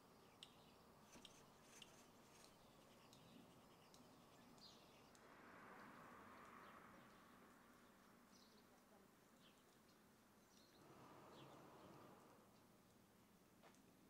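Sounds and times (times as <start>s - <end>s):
faint hiss: 0.0s - 14.0s
soft high ticks: 0.3s - 5.3s.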